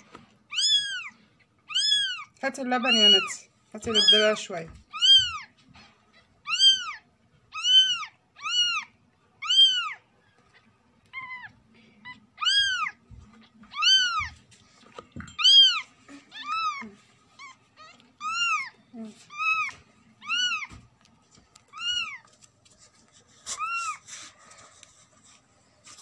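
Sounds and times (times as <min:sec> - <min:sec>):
kitten mewing: 0:06.4 - 0:10.0, 0:11.1 - 0:13.0.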